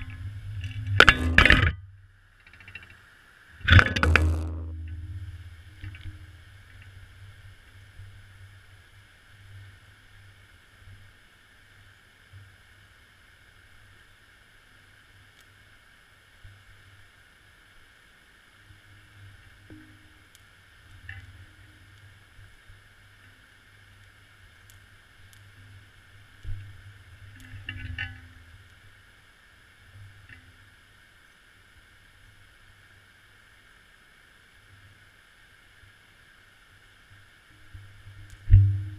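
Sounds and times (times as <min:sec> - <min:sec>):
muffled underwater rumble: 0:00.0 - 0:02.8, 0:03.6 - 0:08.6, 0:37.8 - 0:38.9
faint steady hiss: 0:00.0 - 0:38.9.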